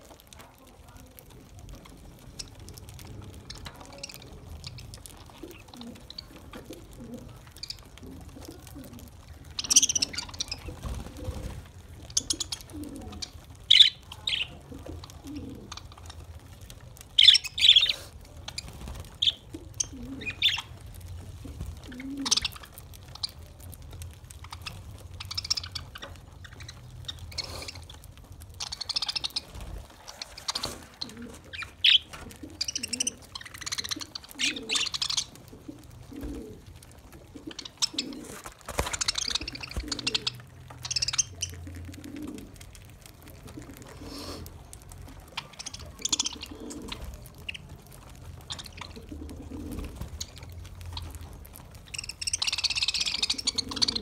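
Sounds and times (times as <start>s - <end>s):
budgerigars chattering: 52.0s - 54.0s.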